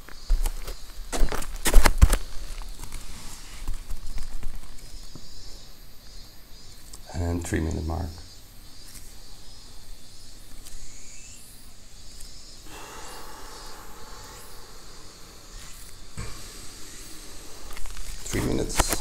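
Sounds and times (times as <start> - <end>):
person inhaling with a hiss: 12.4 - 19.0.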